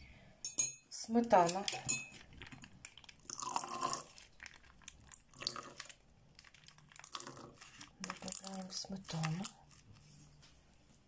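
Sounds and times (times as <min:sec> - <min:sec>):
plastic packet crinkling: 0:02.2 - 0:10.1
cream squelching from pouch: 0:04.1 - 0:10.2.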